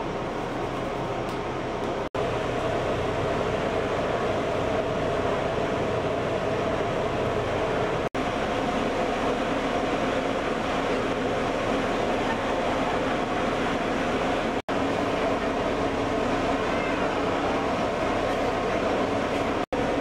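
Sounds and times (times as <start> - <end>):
engine drone with rushing hiss: 0.0 - 20.0.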